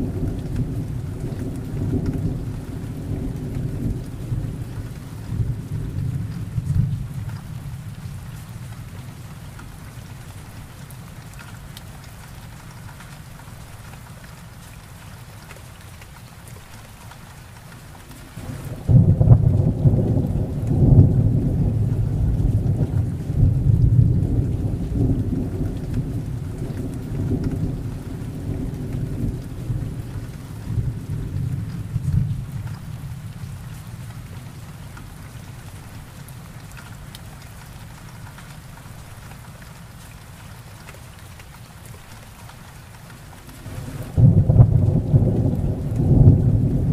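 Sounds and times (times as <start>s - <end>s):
thunder rumbling: 0.0s - 8.2s, 18.4s - 34.4s, 43.6s - 46.9s
heavy rain: 0.0s - 46.9s.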